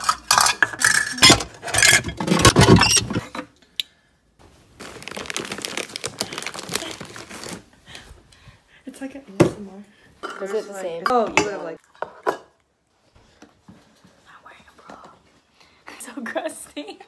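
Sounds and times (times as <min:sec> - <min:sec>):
plastic containers clattering: 0:00.0 - 0:03.3
plastic wrap crinkling: 0:04.7 - 0:07.8.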